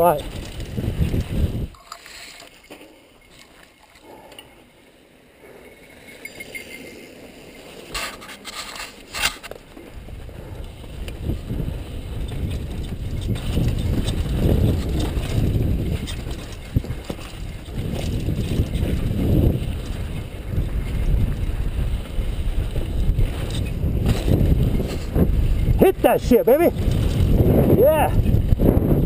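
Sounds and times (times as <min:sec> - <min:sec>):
wind buffeting microphone: 0:00.0 - 0:01.8, 0:09.8 - 0:29.0
bike rattling over ground: 0:00.0 - 0:29.0.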